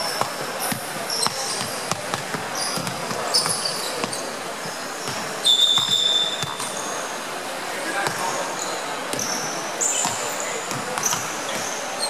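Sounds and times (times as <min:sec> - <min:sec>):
sneaker squeaks: 0:00.0 - 0:07.1, 0:08.0 - 0:12.0
basketballs bouncing on wooden floor: 0:00.1 - 0:04.2.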